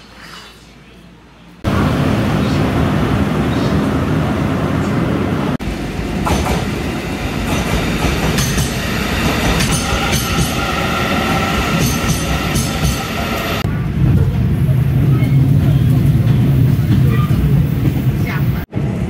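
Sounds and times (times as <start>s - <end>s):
train high whine: 1.7s - 14.0s.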